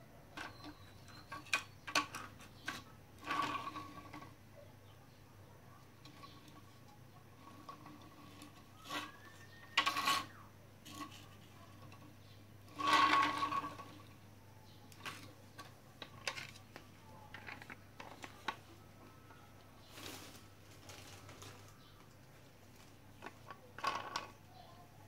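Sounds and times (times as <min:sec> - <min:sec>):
plastic toys clicking and knocking: 0:00.3 - 0:04.4, 0:05.8 - 0:14.2, 0:14.8 - 0:18.7, 0:22.8 - 0:24.7
toy scraping on tile floor: 0:00.4 - 0:04.4, 0:06.0 - 0:14.2, 0:23.2 - 0:24.4.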